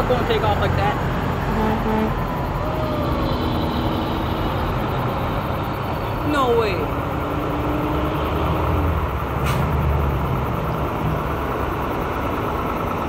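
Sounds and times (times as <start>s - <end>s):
truck diesel engine rumbling: 0.0s - 13.0s
held tone: 1.5s - 5.7s.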